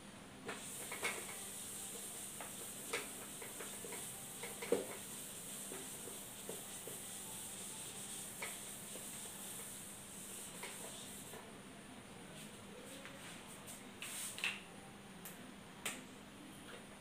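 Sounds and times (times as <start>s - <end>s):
eraser wiping whiteboard: 0.5s - 11.4s.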